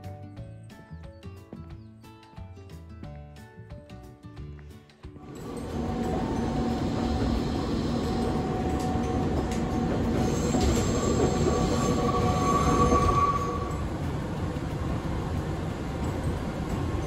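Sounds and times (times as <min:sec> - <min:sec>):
electric train rumble and hum: 0:05.2 - 0:17.0
high wheel squeal: 0:05.4 - 0:14.0.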